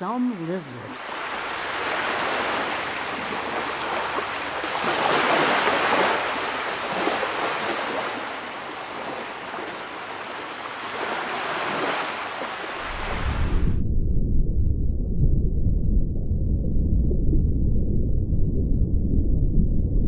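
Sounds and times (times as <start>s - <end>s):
sea waves rushing: 0.0s - 13.8s.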